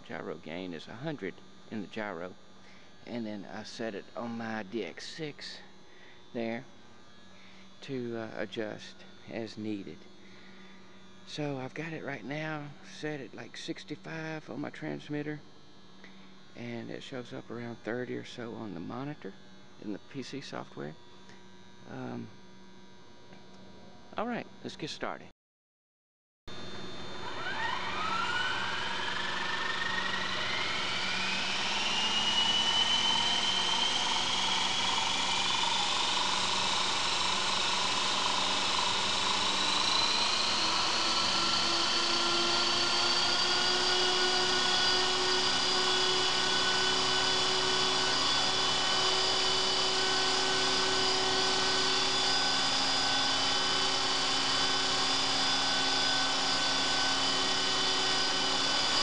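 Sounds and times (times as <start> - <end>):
electric motor whine: 0.0 - 23.5, 26.5 - 59.0
rotor and drivetrain noise: 27.2 - 59.0.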